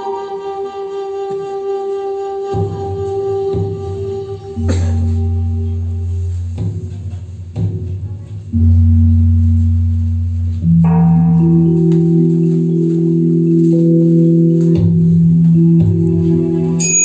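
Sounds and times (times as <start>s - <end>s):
high sustained chord: 3.1s - 7.7s, 8.6s - 17.0s.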